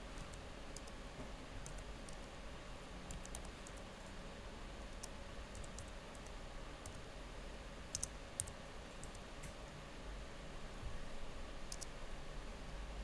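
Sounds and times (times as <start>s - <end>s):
keyboard keys clicking: 3.1s - 3.8s, 7.9s - 9.2s.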